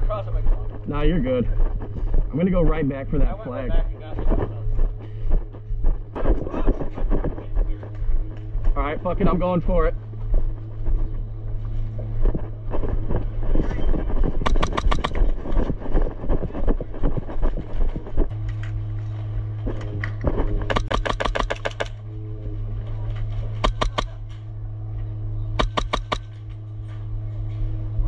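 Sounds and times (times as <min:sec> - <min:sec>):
movement noise: 0:00.0 - 0:28.0
steady low hum: 0:00.0 - 0:28.0
airsoft guns firing bursts: 0:14.4 - 0:15.3, 0:20.7 - 0:22.0, 0:23.6 - 0:24.2, 0:25.6 - 0:26.4.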